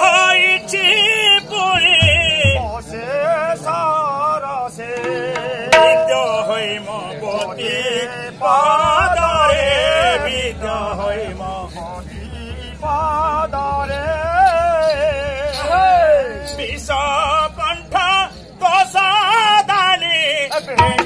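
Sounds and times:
man singing with vibrato: 0.0 - 21.0
sharp strike: 5.0 - 6.9.

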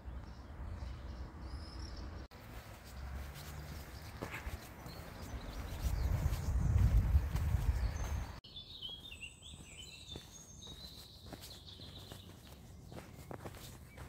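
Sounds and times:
small birds chirping: 0.0 - 14.0
faint footsteps: 2.3 - 14.0.

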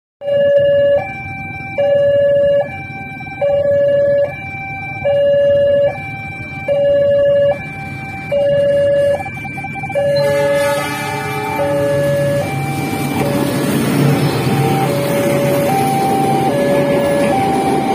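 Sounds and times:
level crossing two-tone alarm: 0.2 - 17.9.

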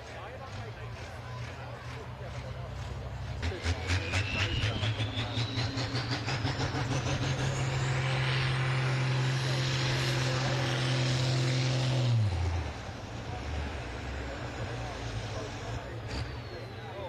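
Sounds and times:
tractor engine at high revs: 0.0 - 17.0
whistle rising in pitch: 3.7 - 6.4.

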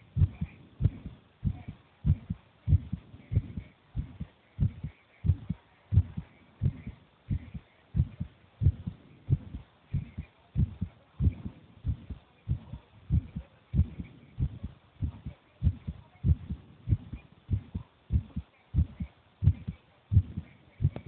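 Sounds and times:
heartbeat: 0.0 - 21.0.

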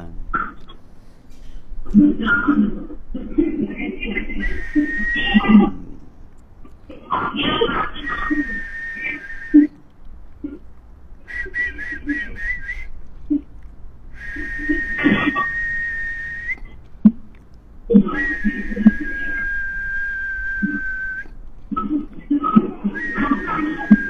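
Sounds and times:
high whistling tone: 4.0 - 5.9, 7.9 - 9.8, 11.2 - 13.0, 14.1 - 16.8, 18.0 - 21.4, 22.4 - 24.0.

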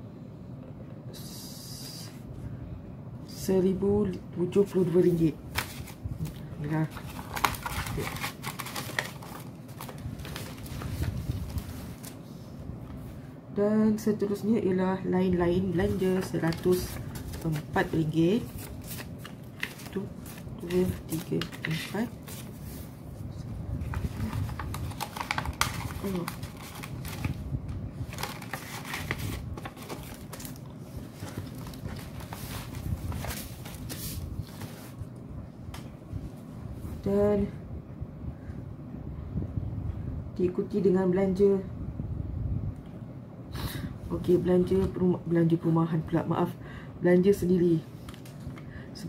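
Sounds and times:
paper rustling: 5.5 - 12.2, 15.7 - 23.0, 23.8 - 27.4, 28.0 - 35.1.

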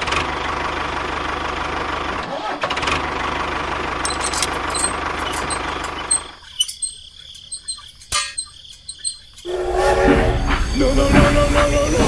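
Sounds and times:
high chirps: 5.2 - 9.5
music: 9.5 - 12.0.

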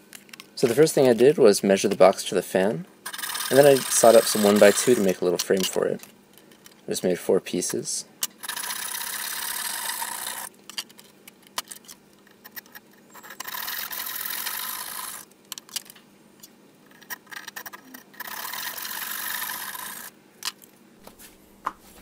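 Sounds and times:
hand saw cutting wood: 3.1 - 5.2.

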